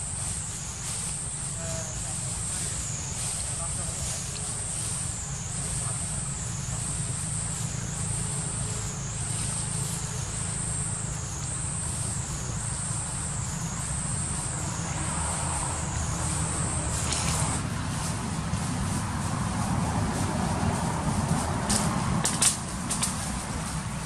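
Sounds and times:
insects buzzing drone: 0.0 - 24.0.

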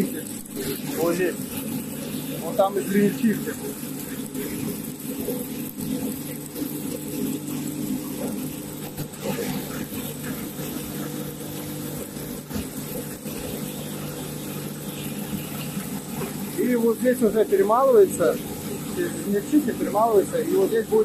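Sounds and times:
machinery humming: 0.0 - 21.0.

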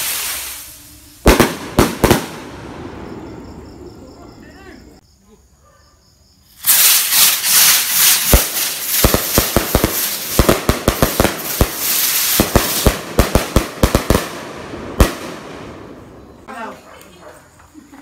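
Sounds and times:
firework cracks and pops: 0.0 - 2.6, 6.5 - 15.8
firework rushing hiss: 0.0 - 3.4, 6.4 - 16.2.

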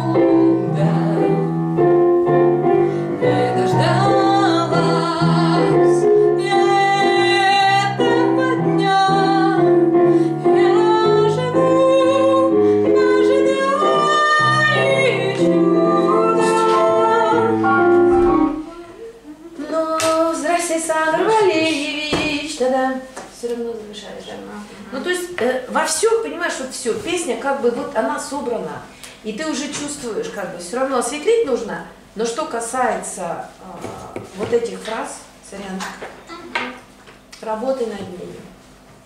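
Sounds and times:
woman singing pop song: 0.0 - 1.6, 3.2 - 17.8, 18.6 - 23.2
piano accompaniment: 0.0 - 19.2.

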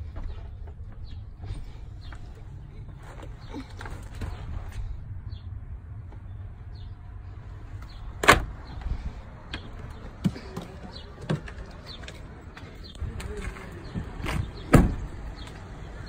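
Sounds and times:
car door unlatching clunk: 8.2 - 8.5.

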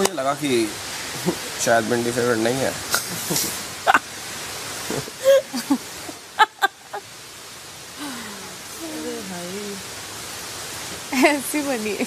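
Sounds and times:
background hiss: 0.0 - 12.0
woman laughing: 3.0 - 4.0, 4.9 - 7.0.

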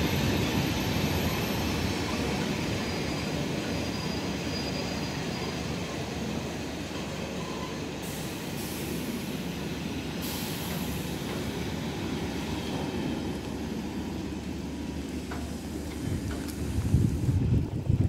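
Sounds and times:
freight wagons rumbling on rails: 0.0 - 18.0
wind buffeting microphone: 15.8 - 18.0.

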